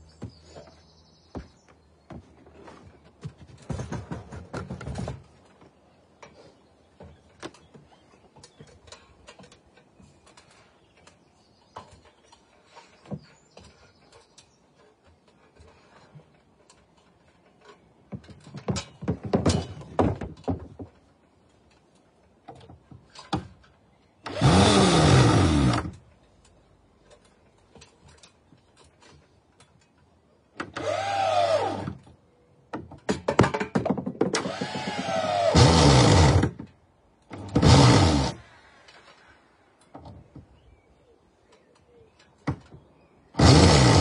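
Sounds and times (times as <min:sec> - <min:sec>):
knocks and clatter: 0:03.1 - 0:05.7, 0:15.2 - 0:21.2, 0:32.7 - 0:35.0
electric drill whirring: 0:24.3 - 0:25.9, 0:30.8 - 0:31.9, 0:34.4 - 0:36.5, 0:37.4 - 0:38.4, 0:43.4 - 0:44.0.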